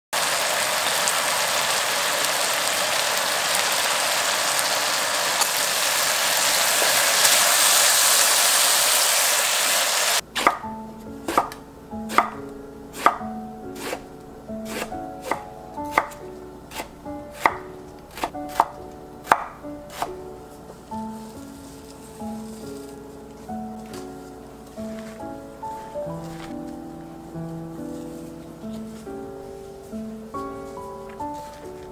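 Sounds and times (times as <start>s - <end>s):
sauce sizzling in a wok: 0.2s - 10.2s
knife chopping on wooden board: 10.4s - 10.7s, 11.3s - 12.4s, 13.0s - 13.2s, 13.8s - 14.0s, 14.6s - 20.2s.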